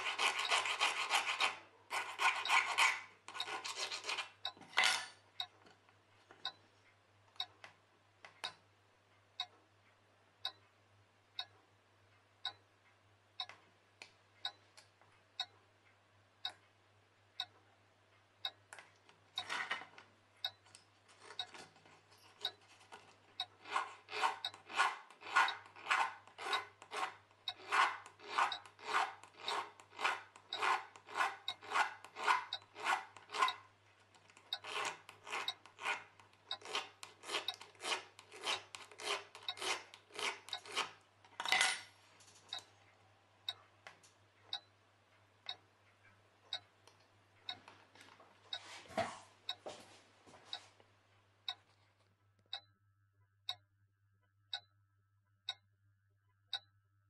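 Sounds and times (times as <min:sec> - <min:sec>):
file rasping on metal: 0:00.0 - 0:04.3, 0:23.6 - 0:33.6, 0:34.6 - 0:41.0
clock ticking: 0:02.3 - 0:04.6, 0:05.4 - 0:05.6, 0:06.4 - 0:10.8, 0:11.4 - 0:19.6, 0:20.4 - 0:20.8, 0:21.4 - 0:21.6, 0:22.4 - 0:22.6, 0:23.3 - 0:40.9, 0:42.5 - 0:43.8, 0:44.4 - 0:47.9, 0:49.5 - 0:49.7, 0:51.5 - 0:51.7, 0:52.5 - 0:52.7, 0:54.5 - 0:54.7, 0:55.4 - 0:55.7, 0:56.5 - 0:56.7.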